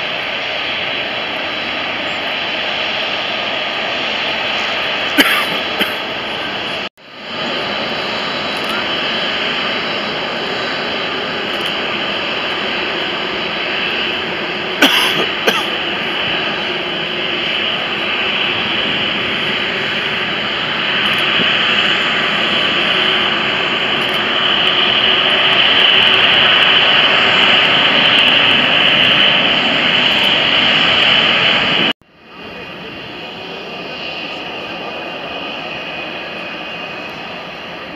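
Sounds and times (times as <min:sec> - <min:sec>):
jet engines whining: 0:00.0 - 0:37.9.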